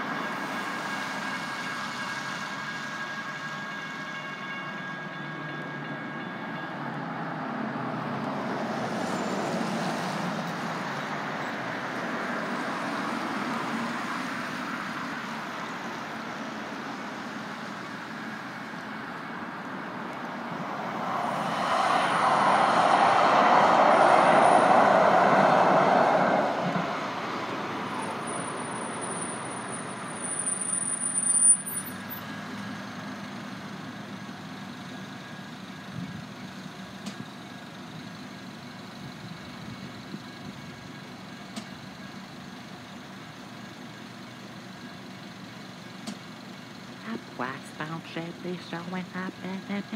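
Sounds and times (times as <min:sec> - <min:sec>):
traffic on a wet road: 0:00.0 - 0:04.2, 0:06.7 - 0:49.9
light-rail train passing: 0:00.0 - 0:49.9
thin high whine: 0:20.5 - 0:27.1.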